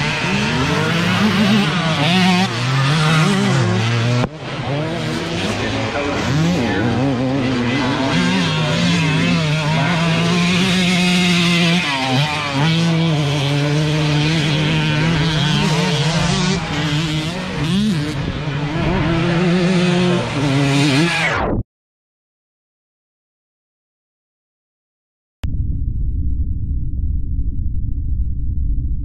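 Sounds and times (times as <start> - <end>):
motocross bike engines revving: 0.0 - 21.3.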